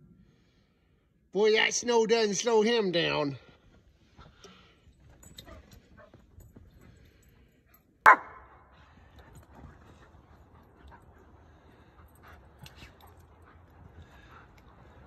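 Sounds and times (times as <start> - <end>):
faint dogs playing: 3.7 - 8.0, 8.6 - 15.0
dog barking loudly: 8.1 - 8.4.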